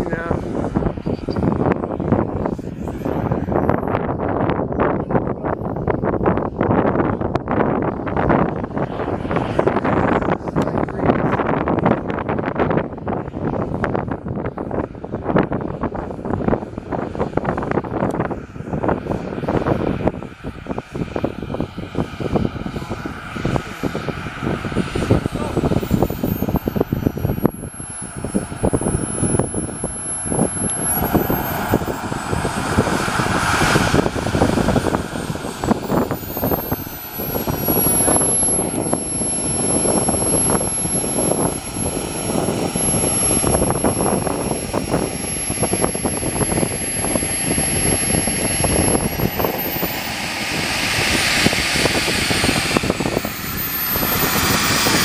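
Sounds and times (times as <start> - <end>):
model jet turbine whine: 0.0 - 55.0.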